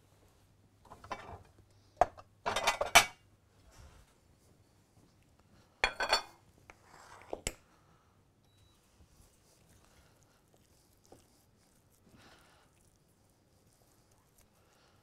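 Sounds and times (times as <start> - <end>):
dishes clinking and clattering: 0.9 - 3.2, 5.8 - 6.4.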